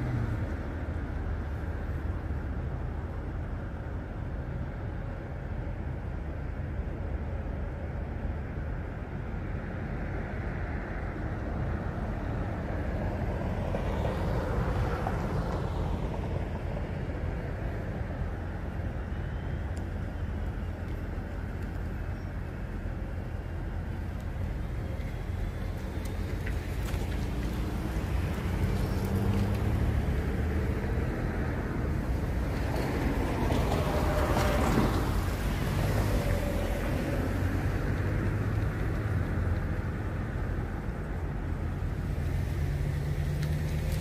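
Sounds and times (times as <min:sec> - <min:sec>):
car passing: 0:00.0 - 0:02.3, 0:10.0 - 0:19.7, 0:23.0 - 0:44.0
street traffic noise: 0:00.0 - 0:44.0.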